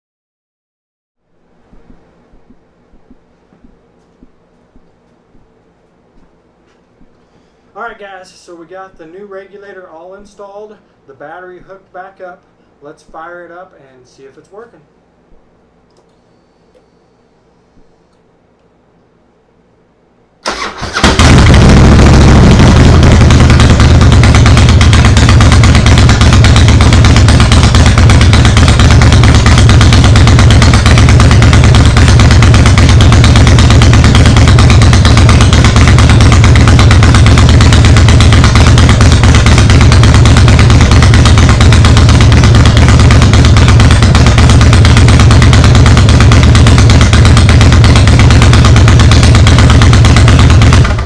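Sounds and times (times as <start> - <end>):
motorcycle engine idling: 20.5 - 51.0.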